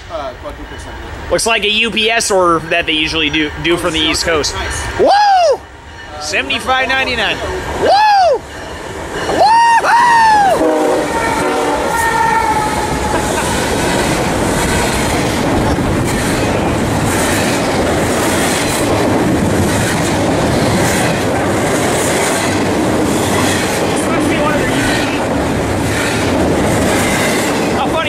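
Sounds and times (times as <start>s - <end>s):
freight train passing: 0.0s - 28.0s
people whooping: 5.0s - 5.7s, 7.8s - 8.5s, 9.3s - 13.6s.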